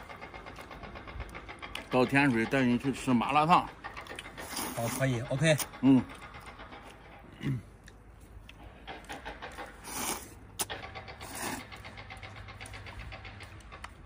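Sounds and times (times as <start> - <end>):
man slurping noodles: 9.8 - 11.7.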